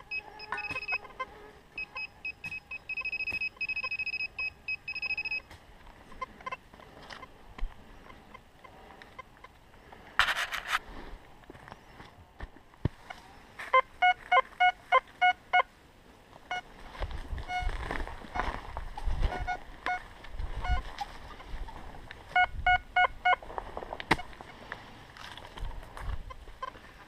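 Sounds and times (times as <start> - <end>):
metal detector beeping: 0.0 - 5.5, 13.6 - 15.7, 17.4 - 17.8, 19.3 - 20.0, 20.6 - 20.9, 22.3 - 23.4
brief scrape: 10.2 - 11.1.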